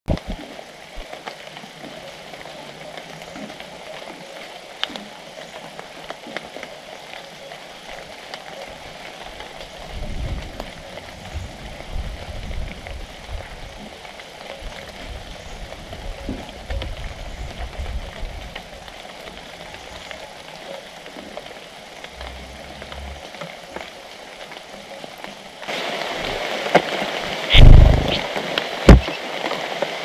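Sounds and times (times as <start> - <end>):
rain pattering on leaves: 0.1 - 30.0
low rumble: 22.1 - 23.4, 27.5 - 28.2.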